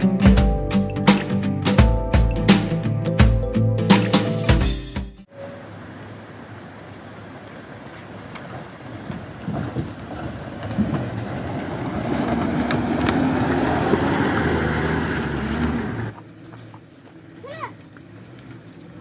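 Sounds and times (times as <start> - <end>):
four-wheel drive engine crawling: 5.2 - 19.0.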